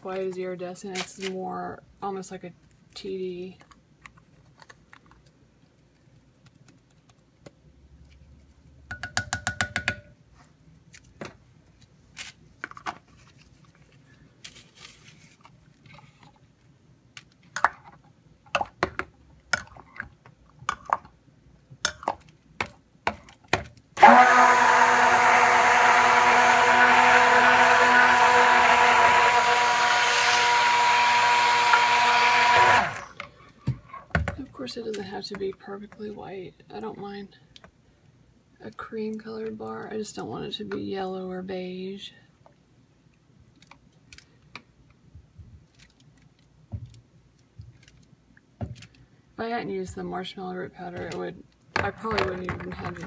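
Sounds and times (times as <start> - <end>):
stick blender running: 24.0 - 33.2.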